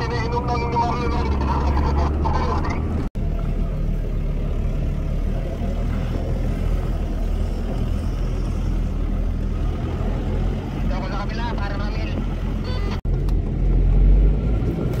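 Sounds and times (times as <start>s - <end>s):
car engine rumble: 0.0s - 15.0s
road noise: 0.0s - 15.0s.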